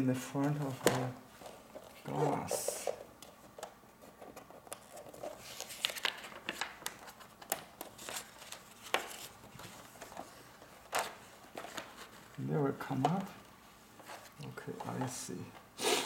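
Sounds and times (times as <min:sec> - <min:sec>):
paper sheets rustling: 0:04.0 - 0:15.2.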